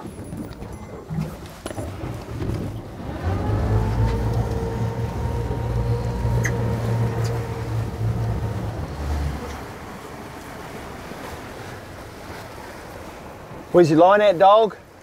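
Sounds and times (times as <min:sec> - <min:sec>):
outboard motor running: 0:00.2 - 0:12.1.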